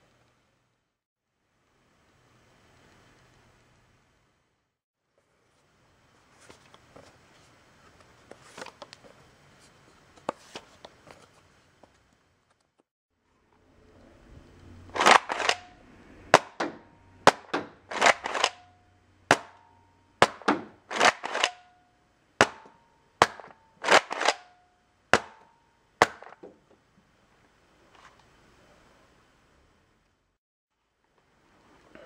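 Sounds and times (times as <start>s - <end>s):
toy blaster clicks and pops: 15.0s - 18.7s, 20.2s - 21.7s, 22.4s - 24.6s.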